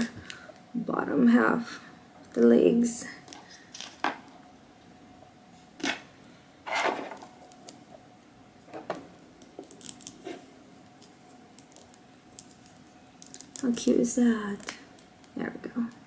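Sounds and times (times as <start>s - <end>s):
plastic parts rustling: 6.7s - 7.7s.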